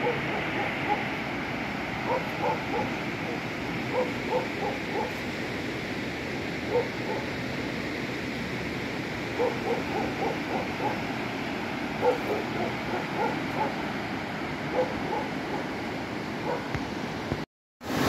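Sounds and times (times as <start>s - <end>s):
animal yelping: 0.0s - 1.1s, 2.0s - 5.2s, 9.4s - 11.0s, 12.0s - 13.8s, 14.7s - 15.7s
river rushing in flood: 0.0s - 18.0s.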